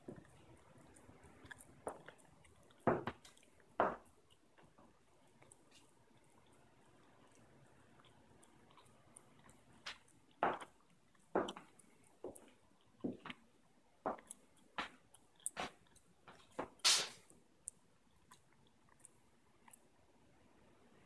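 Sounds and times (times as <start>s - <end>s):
footsteps on tile floor: 2.8s - 4.1s, 9.8s - 10.7s, 11.4s - 13.4s, 14.0s - 17.2s
shoe scuff on floor: 16.6s - 17.2s.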